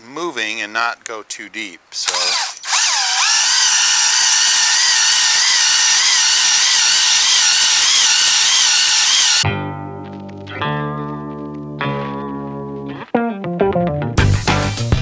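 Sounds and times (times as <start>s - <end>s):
cordless drill whining: 2.0s - 9.4s.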